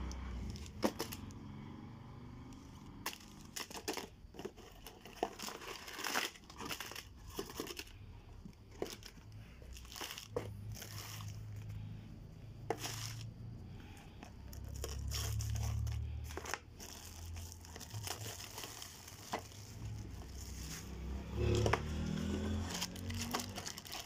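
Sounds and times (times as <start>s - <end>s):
plastic wrappers crinkling: 3.0s - 11.8s, 14.4s - 24.0s.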